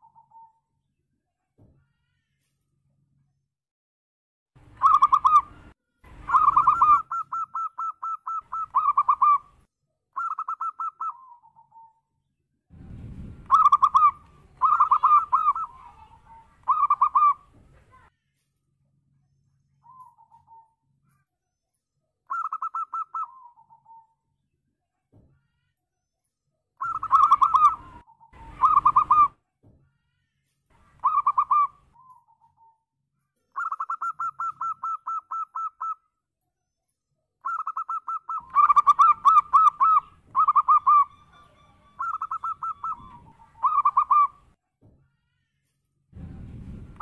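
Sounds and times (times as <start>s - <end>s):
dove cooing: 6.3s - 9.5s, 10.2s - 11.9s, 13.5s - 17.4s, 26.8s - 29.4s, 31.0s - 32.7s, 33.6s - 36.0s, 37.4s - 44.4s.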